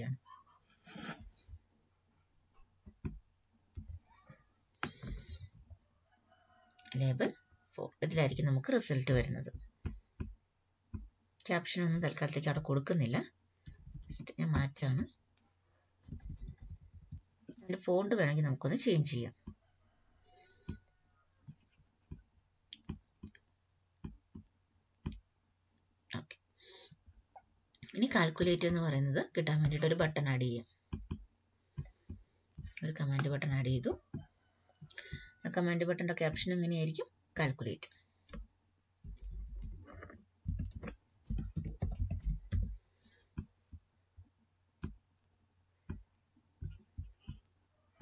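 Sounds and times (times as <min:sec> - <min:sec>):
typing on a keyboard: 0:16.1 - 0:17.2, 0:39.1 - 0:42.8
computer mouse clicking: 0:21.4 - 0:23.4, 0:38.2 - 0:43.5
computer mouse clicks: 0:21.4 - 0:23.4.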